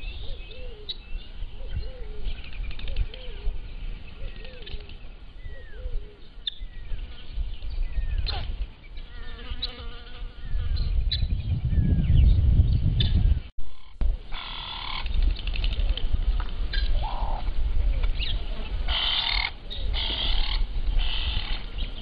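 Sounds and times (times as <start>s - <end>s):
wind rumbling on microphone: 0.0s - 9.2s, 10.0s - 22.0s
small birds chirping: 0.0s - 15.8s
insect buzzing: 9.0s - 10.9s.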